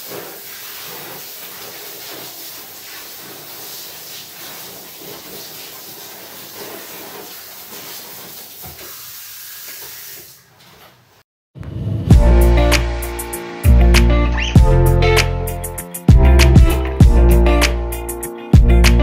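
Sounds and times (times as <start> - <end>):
shower hose spraying into bathtub: 0.0 - 11.0.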